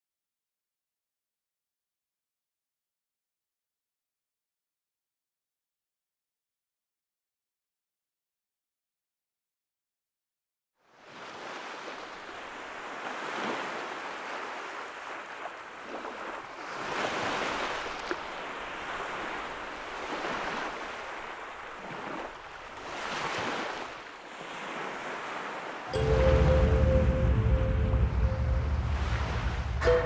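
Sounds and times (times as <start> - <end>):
waves breaking on rocks: 11.0 - 25.9.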